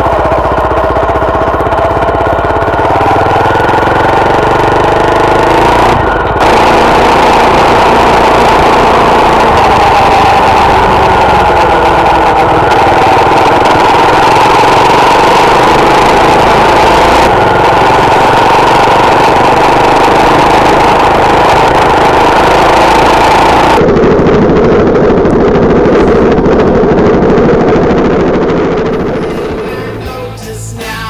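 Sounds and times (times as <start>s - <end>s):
motorcycle engine running: 0.0s - 31.0s
road rumble: 0.0s - 31.0s.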